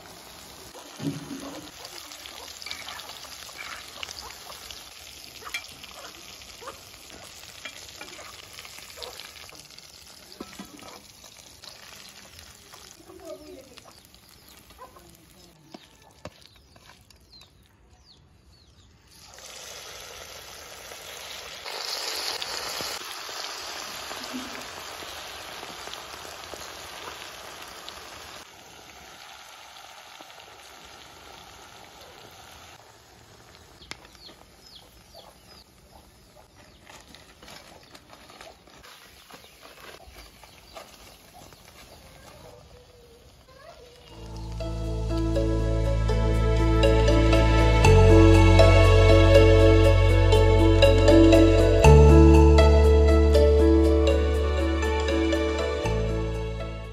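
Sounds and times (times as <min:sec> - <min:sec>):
chicken sizzling in hot oil: 0:00.0 - 0:15.5, 0:19.0 - 0:35.0.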